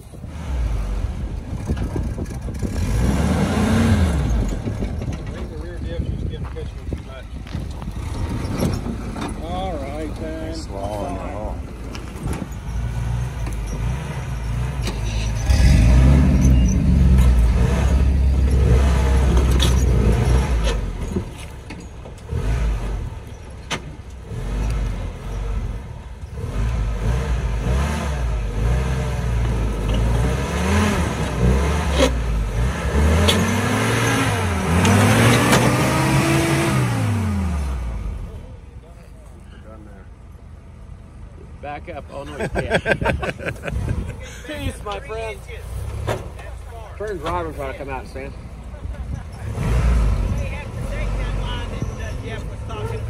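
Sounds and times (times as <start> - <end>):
jeep engine revving: 0.0 - 21.6, 22.2 - 38.6, 47.1 - 53.0.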